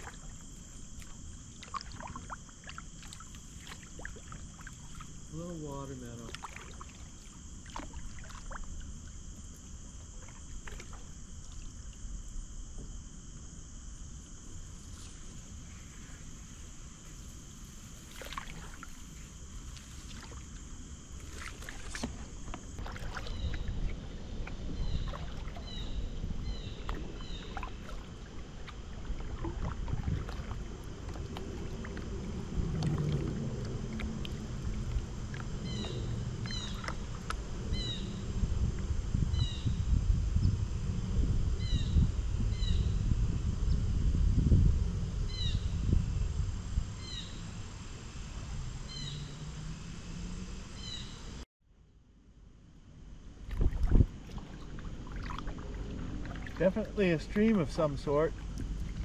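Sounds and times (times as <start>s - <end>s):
paddle splashing in water: 0.0s - 5.2s, 6.2s - 9.2s, 10.1s - 12.0s, 18.0s - 37.4s, 53.4s - 59.0s
wind rumble on microphone: 17.7s - 51.2s, 53.4s - 59.0s.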